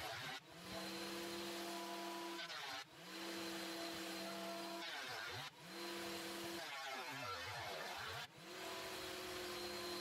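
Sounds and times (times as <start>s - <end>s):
thickness planer motor humming: 0.0s - 4.9s, 5.5s - 6.6s, 8.3s - 10.0s.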